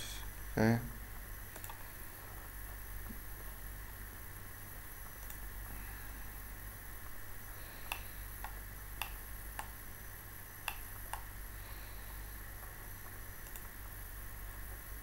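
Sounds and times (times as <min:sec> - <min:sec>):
low hum and hiss: 0:00.0 - 0:15.0
computer mouse clicks: 0:01.5 - 0:01.9, 0:05.2 - 0:05.4, 0:07.8 - 0:09.8, 0:10.6 - 0:11.3, 0:13.4 - 0:13.7.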